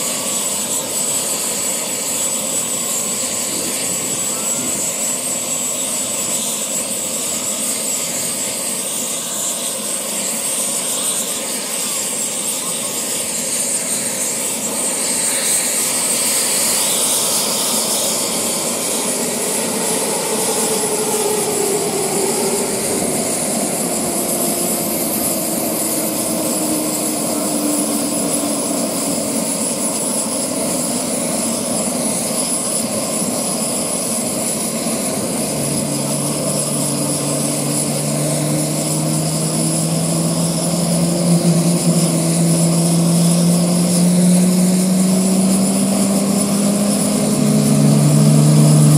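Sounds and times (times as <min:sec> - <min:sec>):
jet engines whining: 0:00.0 - 0:48.9
strong low tone creeping upward: 0:35.5 - 0:48.9.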